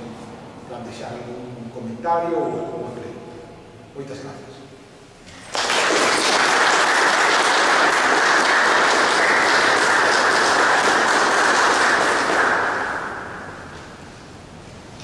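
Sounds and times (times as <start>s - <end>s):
audience applauding: 5.4s - 13.8s.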